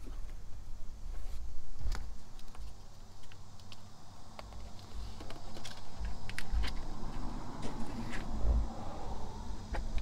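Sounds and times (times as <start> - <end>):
small clicks and taps: 1.9 - 6.9.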